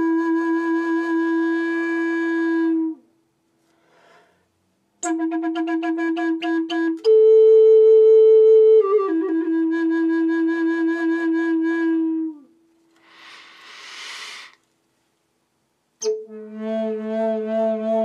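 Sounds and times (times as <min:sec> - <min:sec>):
wooden flute playing: 0:00.0 - 0:03.1, 0:05.0 - 0:12.7, 0:16.0 - 0:18.0.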